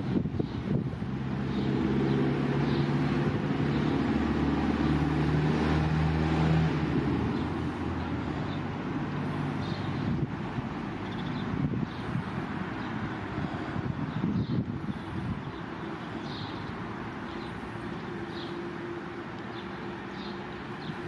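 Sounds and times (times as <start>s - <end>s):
outdoor background noise: 0.0s - 21.0s
vehicle engine humming: 0.0s - 21.0s.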